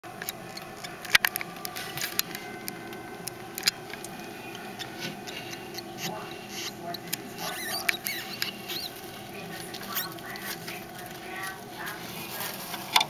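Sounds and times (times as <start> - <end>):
bedding rustling: 6.1 - 13.0.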